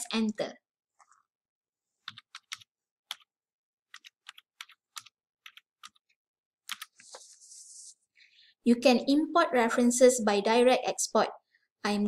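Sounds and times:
keyboard keystrokes: 0:03.9 - 0:07.0.

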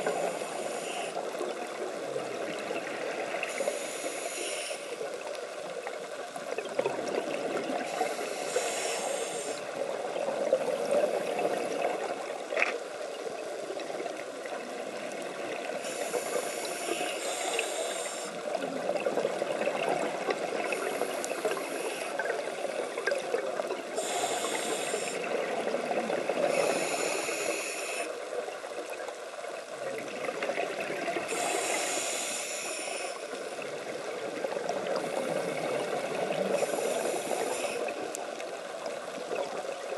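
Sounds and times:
underwater rush of water: 0:00.0 - 0:39.9
scuba regulator bubbling: 0:06.5 - 0:28.1.

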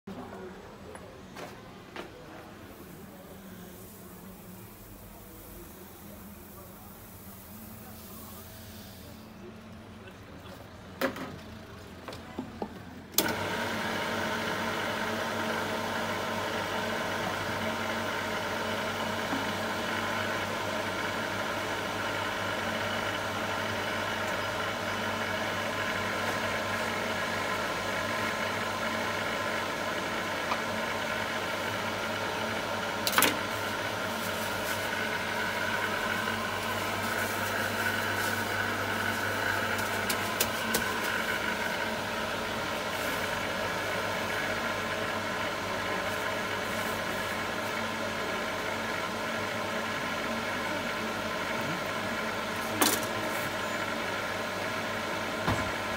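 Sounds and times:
electric mill grinding: 0:13.2 - 0:52.8.

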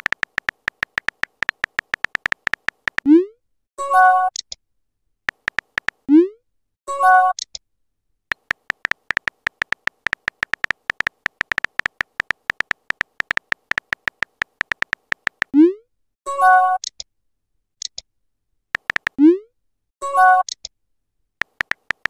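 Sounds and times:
keyboard tap clicks: 0:00.0 - 0:03.1, 0:05.3 - 0:06.0, 0:08.3 - 0:15.5, 0:18.8 - 0:19.2, 0:21.4 - 0:22.0.

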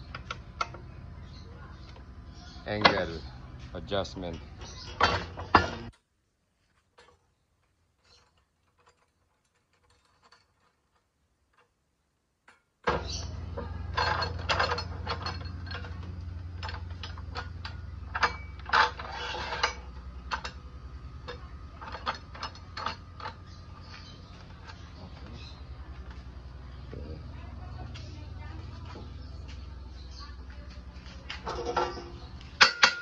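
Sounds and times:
metal clanks and scrapes: 0:02.7 - 0:06.0, 0:06.7 - 0:11.8, 0:12.5 - 0:26.6, 0:30.9 - 0:33.0.

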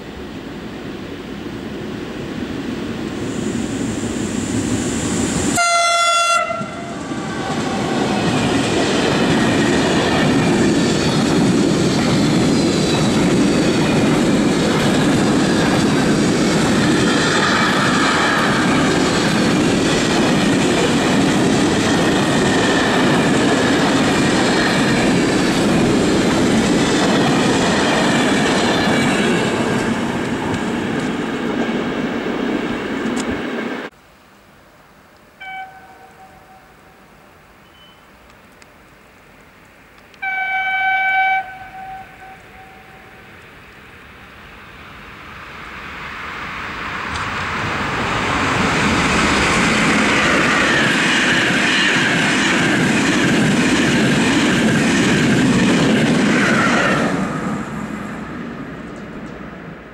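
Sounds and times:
freight train passing: 0:00.0 - 0:33.9, 0:35.4 - 0:37.9, 0:40.2 - 0:59.9
locomotive horn blast: 0:05.5 - 0:08.3, 0:35.4 - 0:37.0, 0:40.2 - 0:43.3.

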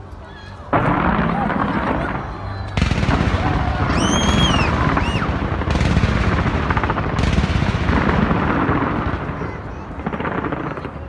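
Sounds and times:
fireworks bangs and crackling: 0:00.7 - 0:11.0
high whistling firework: 0:00.8 - 0:09.4.

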